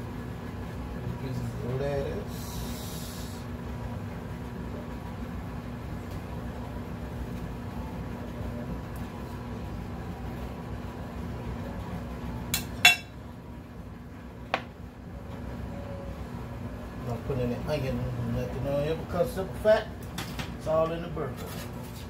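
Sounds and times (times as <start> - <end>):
steady low hum: 0.0 - 22.0
glass dishware clinking: 12.6 - 13.1.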